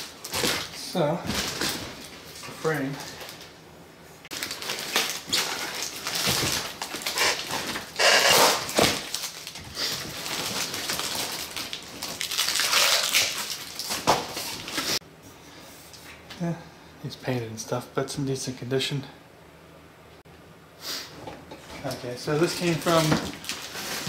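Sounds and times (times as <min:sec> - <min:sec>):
plastic wrap and cardboard crinkling: 0:00.0 - 0:03.5, 0:04.3 - 0:15.0, 0:21.9 - 0:24.0.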